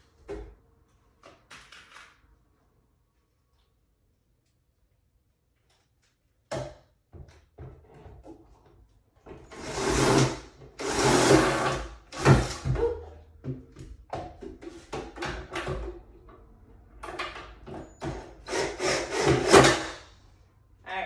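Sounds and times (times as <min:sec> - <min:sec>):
cordless drill driving screws: 0:09.5 - 0:12.6, 0:18.4 - 0:20.0.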